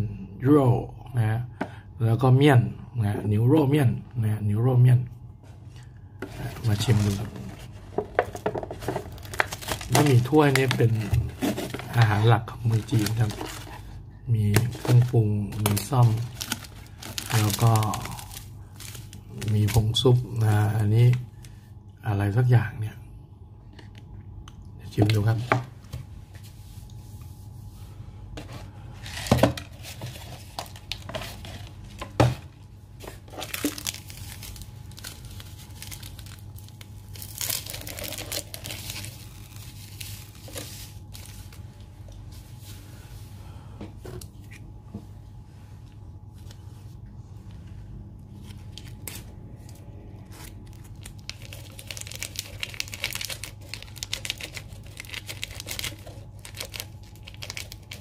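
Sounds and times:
low steady hum: 0.0 - 58.0
plastic sachets tearing and crinkling: 6.3 - 20.4, 33.2 - 41.6, 48.4 - 58.0.

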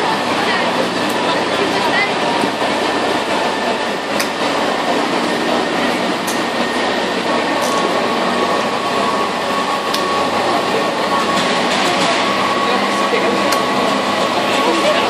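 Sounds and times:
ice resurfacer mechanical drone: 0.0 - 15.0
thin machine whine: 0.0 - 15.0.

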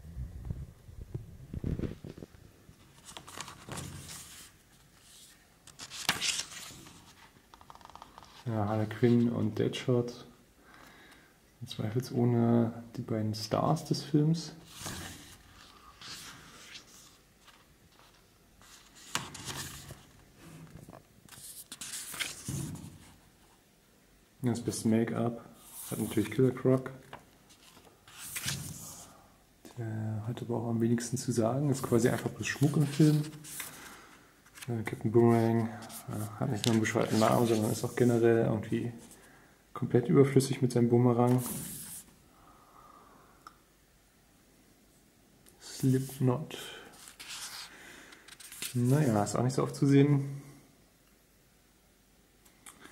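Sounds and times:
book pages turning: 2.8 - 8.5, 14.7 - 23.2, 27.1 - 29.0, 31.8 - 38.2, 47.0 - 49.1.

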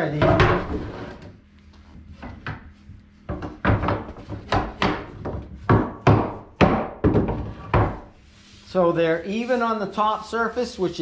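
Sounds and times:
handling of wooden boards: 2.0 - 8.7.

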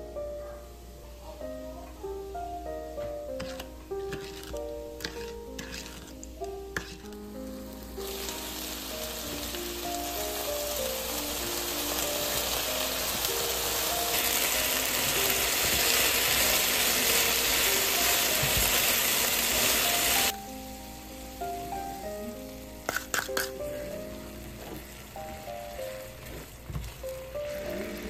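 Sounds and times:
food sizzling in a frying pan: 2.3 - 28.0.

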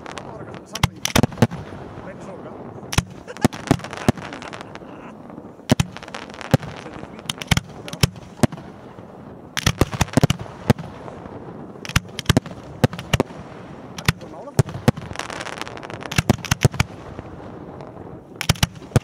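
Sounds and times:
fireworks bangs: 0.0 - 19.0.

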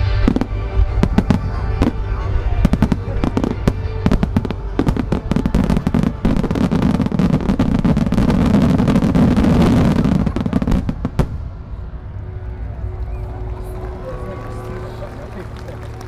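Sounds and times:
fireworks bangs and crackling: 0.0 - 12.1.

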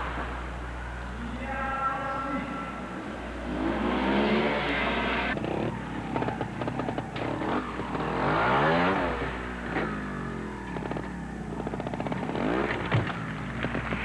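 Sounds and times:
motorcycle engine revving: 3.0 - 14.0.

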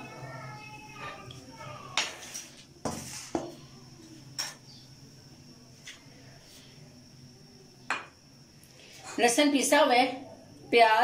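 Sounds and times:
faint high whine: 0.0 - 11.0
kitchen things knocking and clinking: 4.3 - 4.7, 7.9 - 8.2.

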